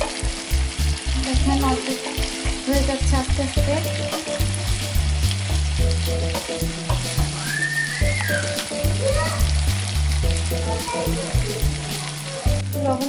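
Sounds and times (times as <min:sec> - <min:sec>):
fish sizzling in oil: 0:00.0 - 0:13.0.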